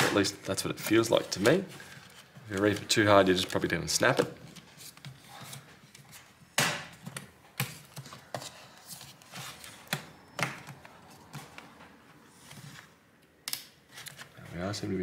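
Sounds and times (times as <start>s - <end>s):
plastic clips snapping: 13.4s - 13.8s.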